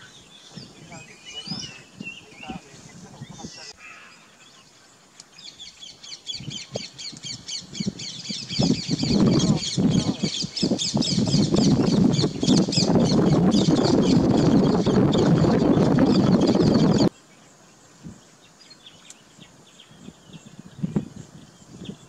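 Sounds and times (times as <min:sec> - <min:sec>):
chorus of birds calling: 0:00.0 - 0:17.4.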